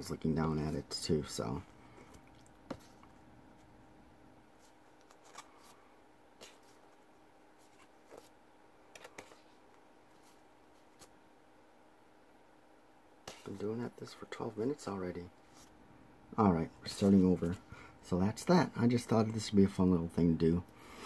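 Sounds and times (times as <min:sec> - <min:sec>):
stiff paper cards rustling: 0:04.6 - 0:11.2.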